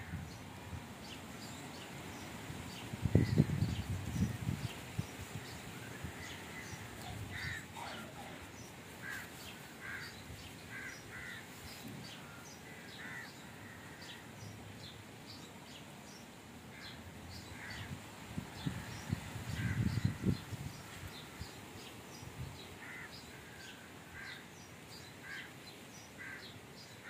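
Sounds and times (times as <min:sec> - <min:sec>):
bird short repeated calls: 0:06.2 - 0:11.5.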